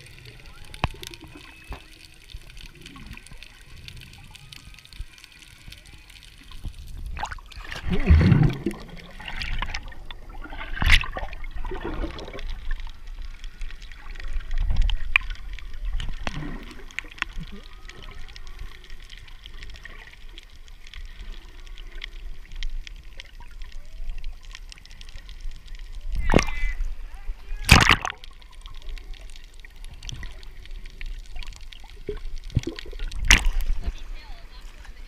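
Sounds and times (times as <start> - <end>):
bubbling rushing water: 0.0 - 35.0
whale song calls: 0.5 - 2.2.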